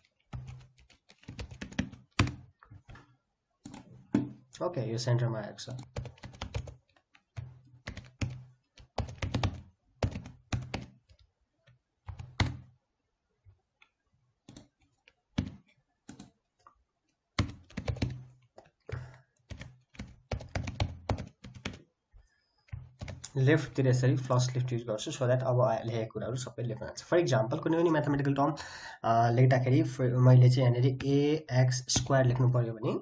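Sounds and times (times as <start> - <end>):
typing on computer keyboard: 0.0 - 3.0, 3.6 - 3.9, 5.7 - 12.7, 14.4 - 16.4, 17.4 - 21.8, 22.6 - 23.3.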